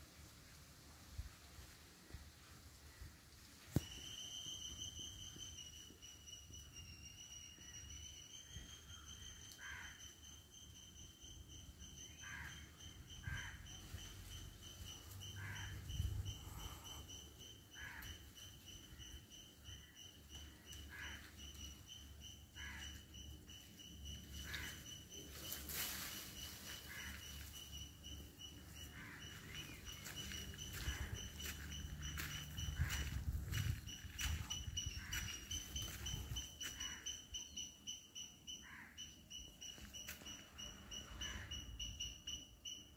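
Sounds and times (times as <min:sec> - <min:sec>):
cricket trilling: 0:03.8 - 0:42.9.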